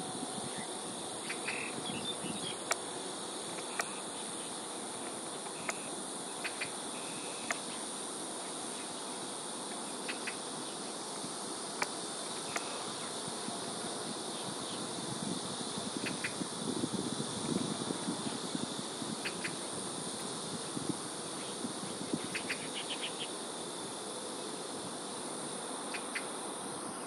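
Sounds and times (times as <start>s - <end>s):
high-pitched insect drone: 0.0s - 27.0s.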